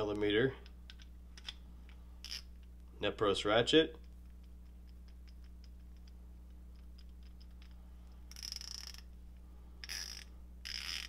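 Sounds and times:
ratchet pawl clicking: 8.3s - 9.1s, 9.8s - 11.0s.

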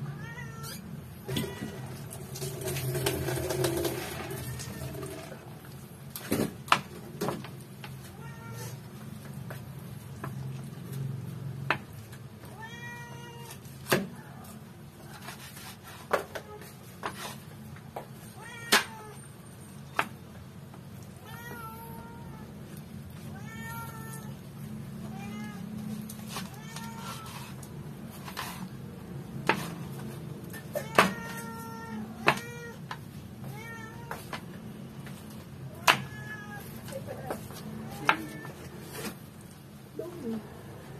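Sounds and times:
cat meowing: 0.0s - 2.2s, 8.1s - 8.8s, 12.5s - 13.7s, 18.4s - 19.2s, 21.1s - 22.6s, 23.3s - 24.4s, 25.0s - 27.6s, 30.4s - 34.3s, 35.7s - 39.1s.

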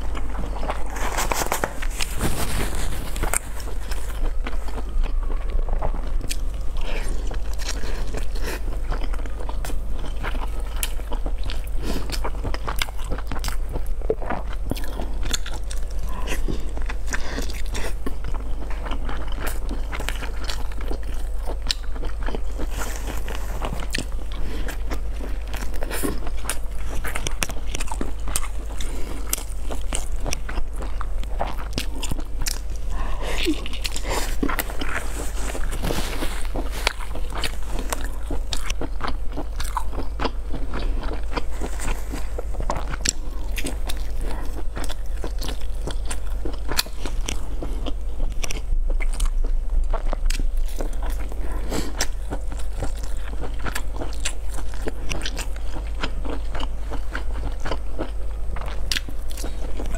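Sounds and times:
person chewing a soft roll: 0.0s - 59.9s
steady low hum: 0.0s - 59.9s.

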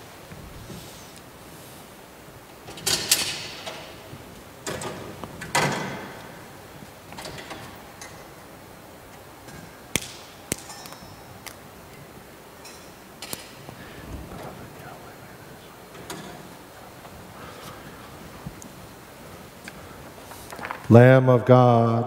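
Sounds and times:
knocks and clinks of objects: 9.4s - 11.5s, 12.6s - 13.6s
click with bright ring: 10.6s - 11.4s.

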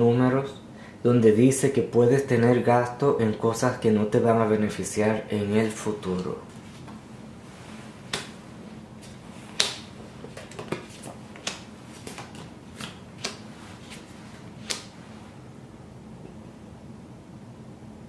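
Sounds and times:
cards snapping on wooden table: 9.6s - 14.0s.

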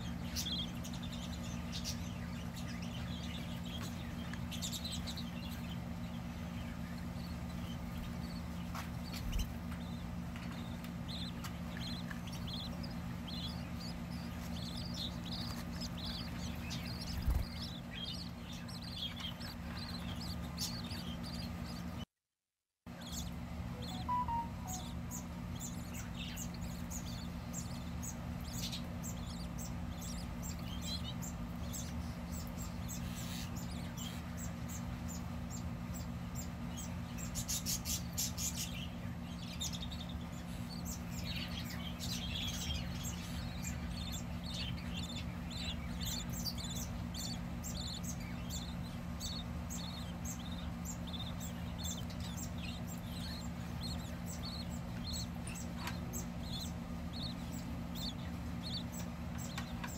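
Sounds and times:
budgerigar chicks chirping: 0.0s - 22.0s, 22.9s - 59.9s
steady low hum: 0.0s - 22.1s, 22.9s - 59.9s.

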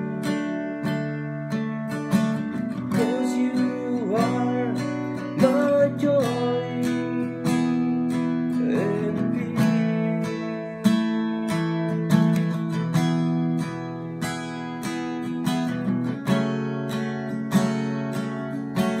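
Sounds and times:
acoustic guitar strumming: 0.0s - 19.0s
person singing: 2.7s - 12.3s.

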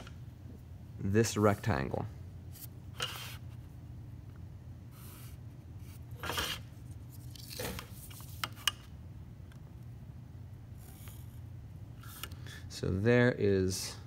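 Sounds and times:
steady low hum: 0.0s - 14.0s
ruler scraping across paper: 5.0s - 6.7s.

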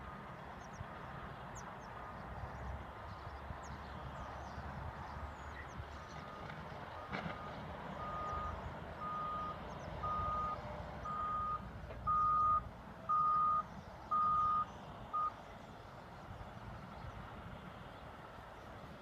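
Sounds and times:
low engine rumble: 0.0s - 19.0s
vehicle backup alarm beeping: 5.5s - 15.4s.

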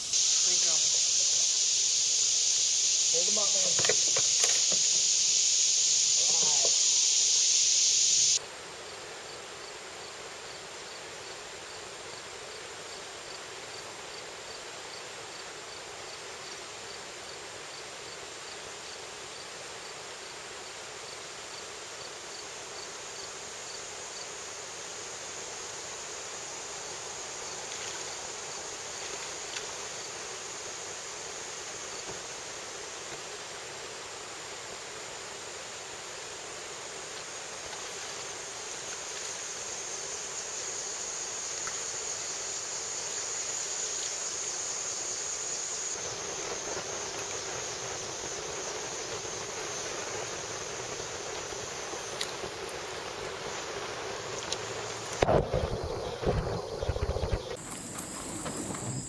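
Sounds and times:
loud high hissing: 0.0s - 8.4s
insect chirping: 0.0s - 59.0s.

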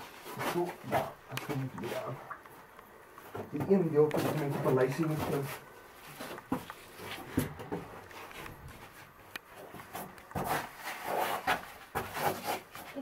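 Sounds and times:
knocks and rustles: 3.2s - 13.0s.

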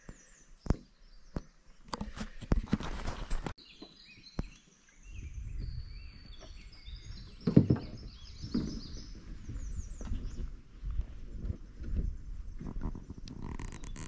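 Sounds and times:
songbirds singing: 0.0s - 14.0s
dull low thumps: 5.1s - 13.7s.

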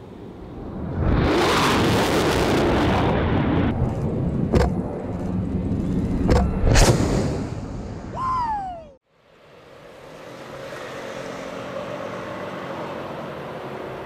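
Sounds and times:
fighter jet roaring past: 0.0s - 8.1s
low rumble: 0.2s - 8.2s.

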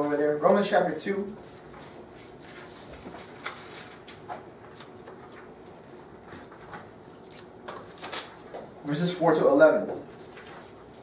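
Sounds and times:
pages turning: 2.2s - 5.6s, 6.4s - 8.4s.

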